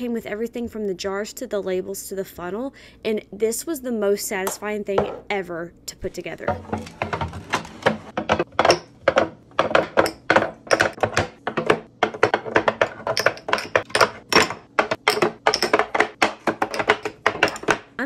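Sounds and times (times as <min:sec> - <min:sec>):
glass jars knocking on wood: 0:06.5 - 0:18.0.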